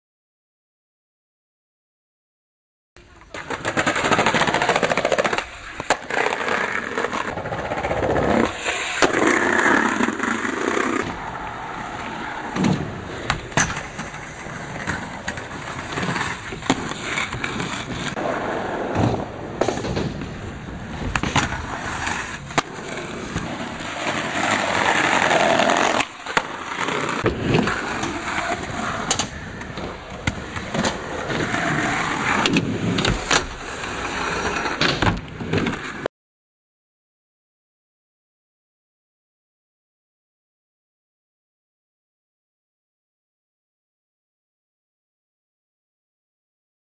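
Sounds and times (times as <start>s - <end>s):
skateboard clacking on ground: 3.0s - 11.3s, 18.9s - 33.6s
skateboard wheels rolling on concrete: 3.0s - 36.1s.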